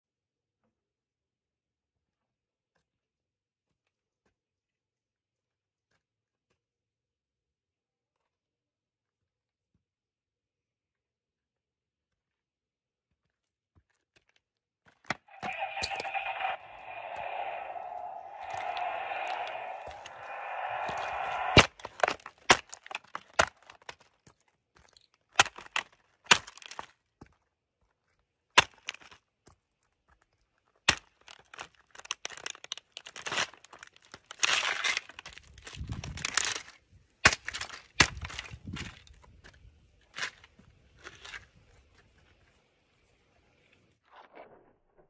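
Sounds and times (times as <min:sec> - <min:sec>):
electronic toy sound: 0:15.3 - 0:18.8.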